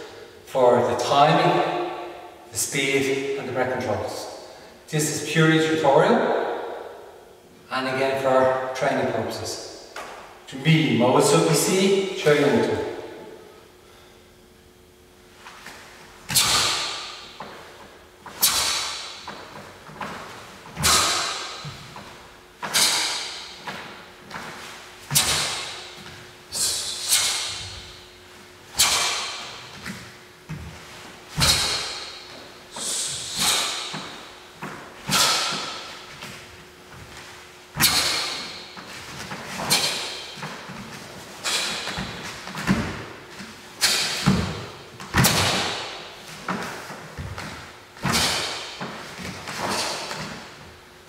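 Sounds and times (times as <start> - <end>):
uniform snapping with strikes: 28.8 - 30.0
feet stamping on foam mats: 28.8 - 50.6.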